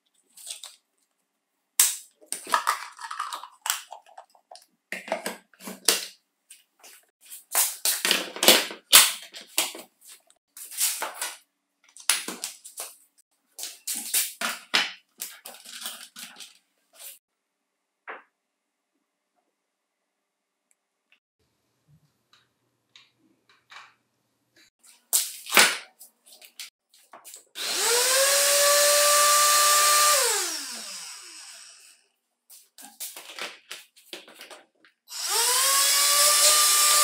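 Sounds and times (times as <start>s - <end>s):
plastic parts clacking and rattling: 2.2s - 6.2s, 13.9s - 16.7s, 32.8s - 35.0s.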